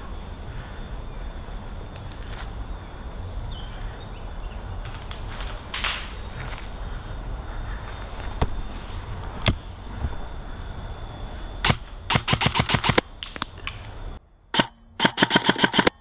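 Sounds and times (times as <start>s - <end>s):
airsoft guns firing: 11.6s - 13.0s, 14.6s - 16.0s.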